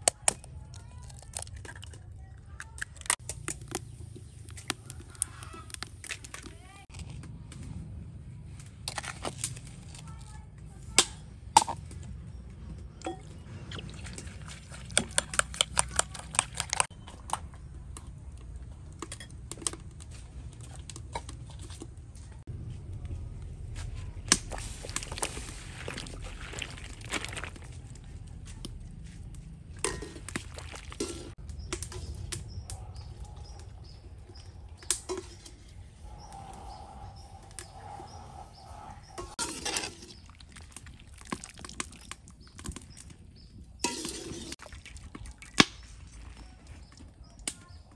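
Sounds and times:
steady low rumble: 22.0 - 39.4
water boiling in a wok: 24.3 - 27.8, 39.2 - 46.3
metal strainer scooping: 29.8 - 32.0, 39.2 - 40.5, 43.8 - 44.7.

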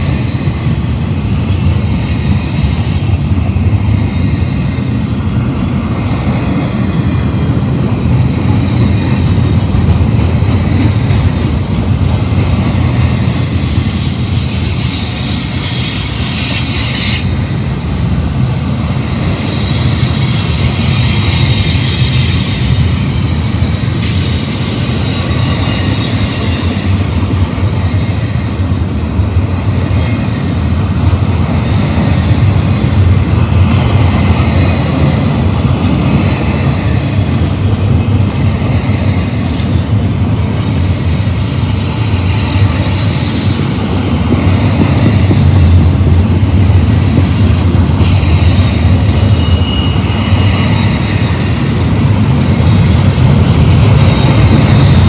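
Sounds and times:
train wheels rumbling on rail: 0.0 - 55.0
high-pitched wheel squeal: 24.0 - 27.0, 48.0 - 51.7.

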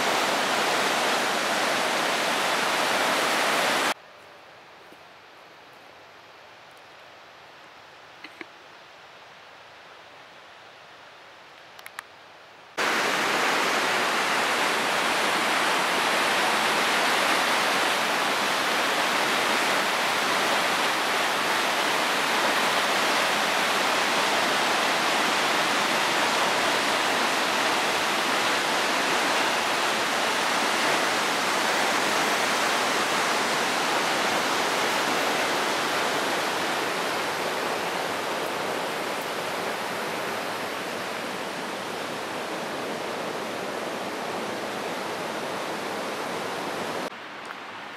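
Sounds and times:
stream rushing over rapids: 0.0 - 4.0, 12.7 - 47.9.

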